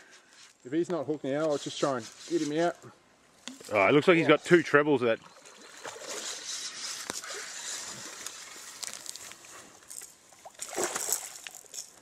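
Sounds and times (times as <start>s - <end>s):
water splashing and sloshing: 5.1s - 12.0s.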